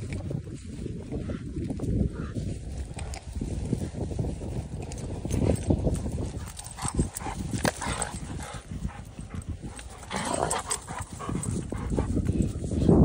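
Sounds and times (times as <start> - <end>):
paws scuffling on dry grass: 0.0 - 13.0
dogs growling: 5.3 - 12.4.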